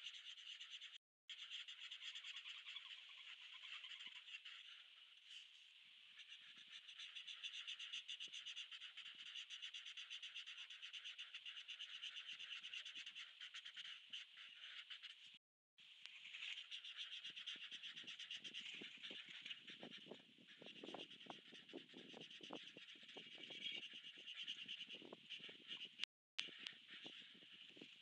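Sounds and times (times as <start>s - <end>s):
marker scratching on paper: 13.4s - 15.2s, 17.9s - 27.6s.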